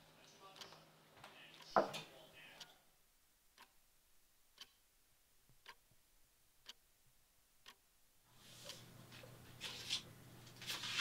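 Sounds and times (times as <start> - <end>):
low steady hum and hiss: 0.0 - 11.0
clock ticking faintly: 3.5 - 3.9, 4.5 - 4.9, 5.5 - 7.9.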